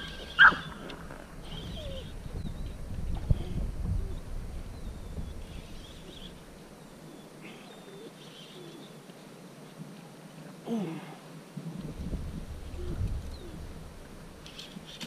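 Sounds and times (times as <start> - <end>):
wild birds chirping: 0.0 - 15.0
low rumble: 0.6 - 6.8.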